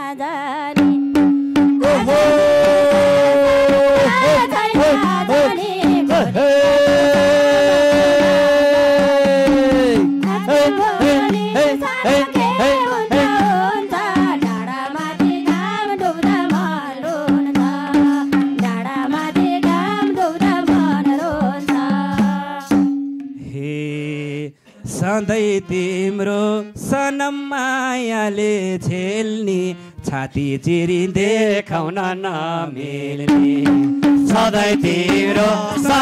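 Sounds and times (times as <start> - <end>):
hand drum strokes: 0.8 - 23.5
harmonium chord: 10.0 - 23.4, 25.1 - 28.7.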